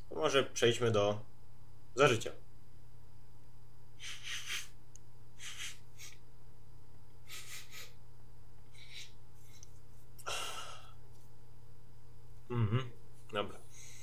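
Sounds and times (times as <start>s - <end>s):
man sniffing sharply: 4.0s - 4.8s, 5.4s - 6.2s, 7.2s - 8.0s, 8.8s - 9.2s.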